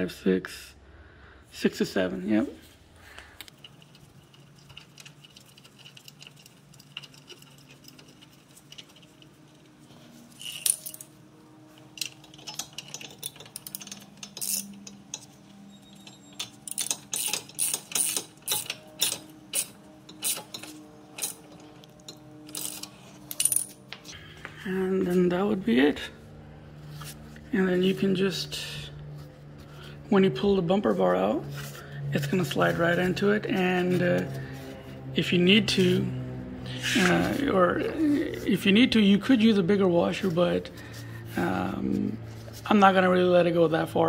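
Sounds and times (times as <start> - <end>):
socket ratchet clicking: 16.4 - 23.6.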